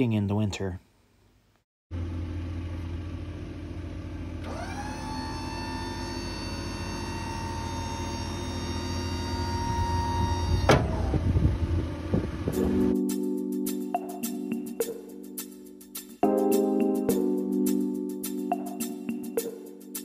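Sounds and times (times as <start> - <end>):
electric pump motor whining: 4.4 - 12.8.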